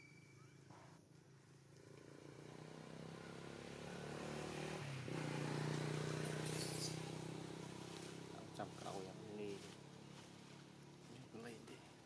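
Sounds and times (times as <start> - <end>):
vehicle engine running: 5.1 - 12.0.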